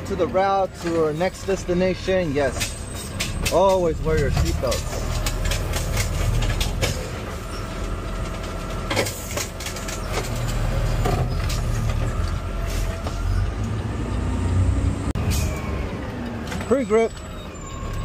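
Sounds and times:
garbage truck diesel engine: 0.0 - 18.0
knocks and clanks: 2.4 - 13.7.

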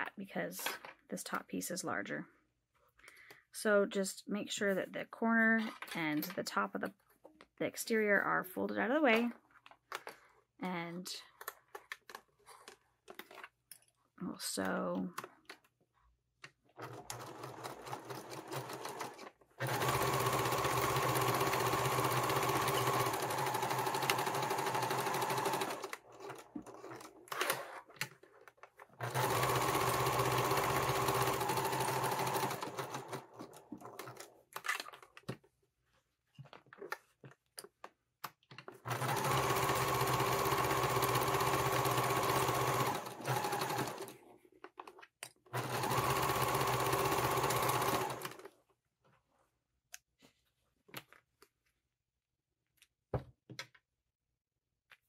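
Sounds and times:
sewing machine stitching: 16.8 - 27.9, 29.0 - 34.4, 38.8 - 44.2, 45.5 - 48.5.

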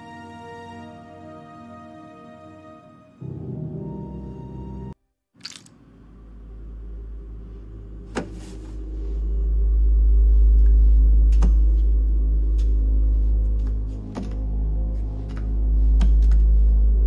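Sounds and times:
faint steady low tones: 5.9 - 17.0
deep low rumble: 6.1 - 17.0.

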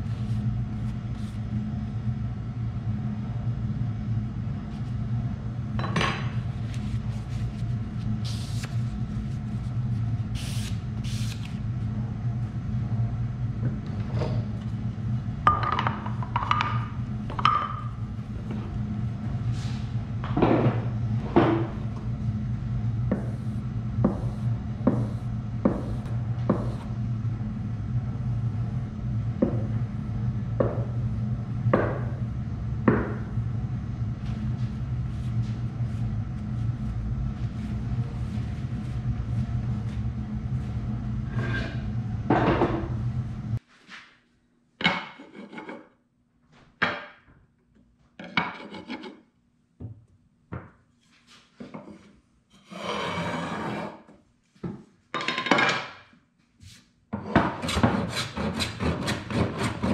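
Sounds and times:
low hum: 0.0 - 43.6.

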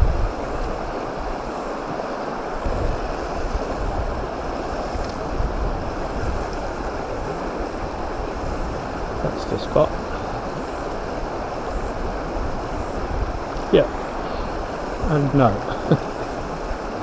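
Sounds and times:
stream rushing over stones: 0.0 - 17.0
wind rumbling on microphone: 0.0 - 17.0.

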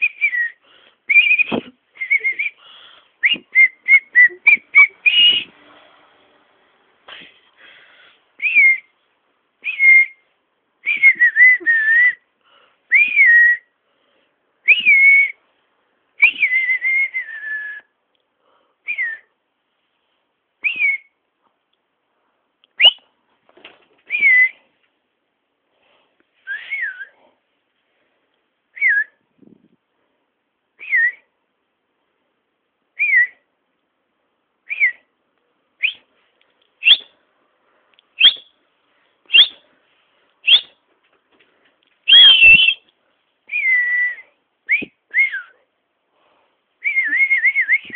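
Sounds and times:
person whistling short notes: 0.0 - 2.6, 3.2 - 5.6, 22.8 - 23.1, 26.4 - 27.2, 35.8 - 36.1, 36.8 - 37.1, 38.2 - 38.5, 39.3 - 39.6, 40.4 - 40.8, 42.1 - 42.9, 43.5 - 45.6, 46.8 - 47.9.

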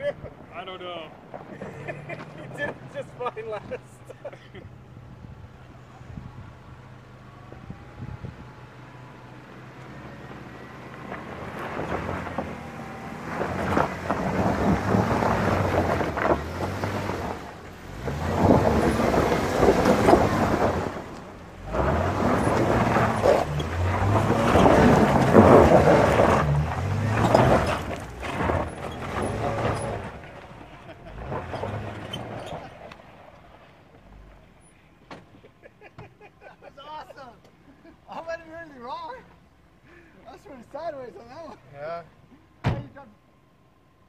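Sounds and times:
truck engine revving: 1.5 - 34.7
wind noise on microphone: 5.0 - 6.7, 7.6 - 8.6.

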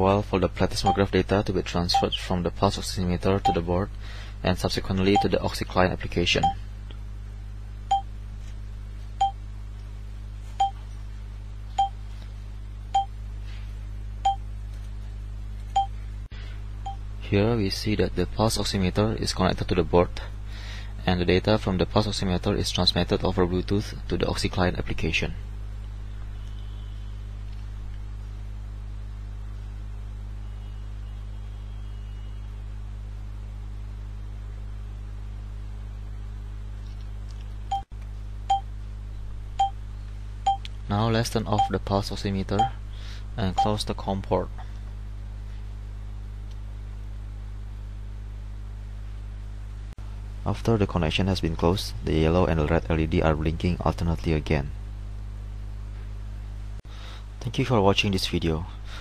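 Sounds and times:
low mains hum: 0.0 - 59.0
short electronic beeps: 0.8 - 1.0.

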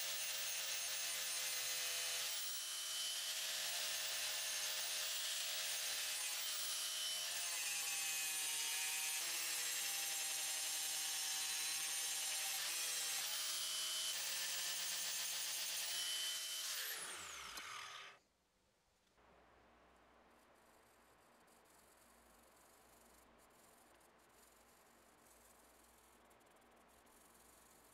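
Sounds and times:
angle grinder grinding steel: 11.0 - 18.2
grinder disc spinning down: 16.4 - 18.2.

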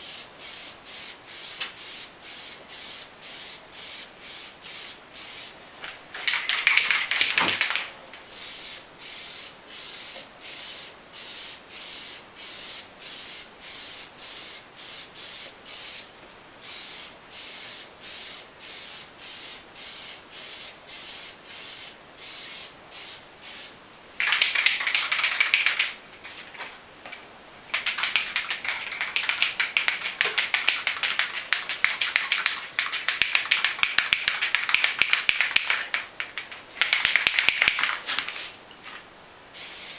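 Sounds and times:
aerosol can spraying: 0.0 - 5.6, 6.2 - 26.0, 27.7 - 38.5, 39.6 - 39.9
short hiss pulses: 0.0 - 5.6, 6.3 - 25.0, 39.5 - 39.9.

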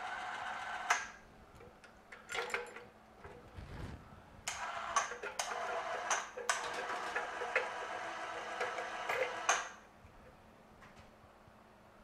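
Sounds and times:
electric winch running: 0.0 - 1.2, 4.5 - 9.8.

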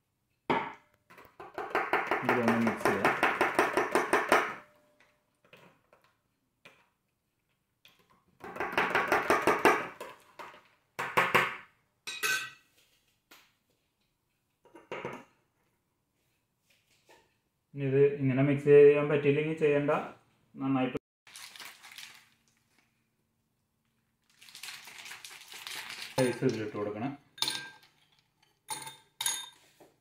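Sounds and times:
spoon clinking in metal tumbler: 26.2 - 26.8.

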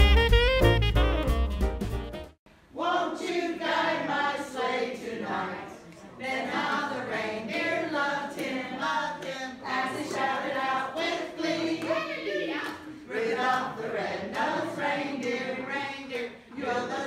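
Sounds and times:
background music: 0.0 - 2.4
group of people singing: 2.7 - 17.0.

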